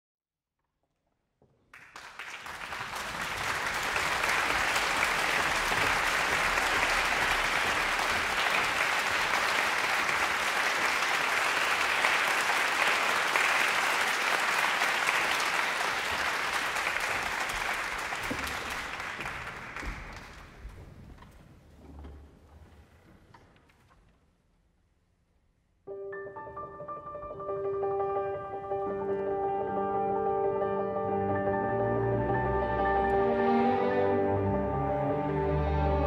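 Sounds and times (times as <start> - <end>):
audience applauding: 1.7 - 21.2.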